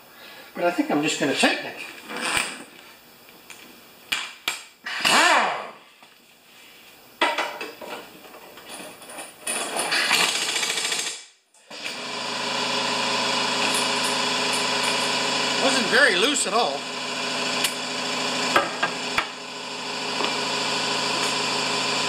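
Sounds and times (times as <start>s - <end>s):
pneumatic impact wrench bursts: 5.0s - 5.7s, 9.6s - 15.7s
air compressor running: 9.5s - 22.0s.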